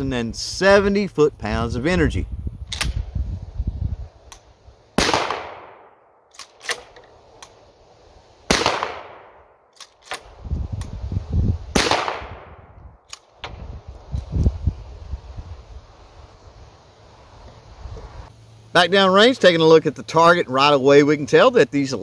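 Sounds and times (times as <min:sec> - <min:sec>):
shotgun pump action clacking: 0:02.7 - 0:03.0, 0:06.3 - 0:07.6, 0:09.8 - 0:10.3
shotgun shots echoing: 0:05.0 - 0:07.0, 0:08.5 - 0:09.5, 0:11.7 - 0:12.6.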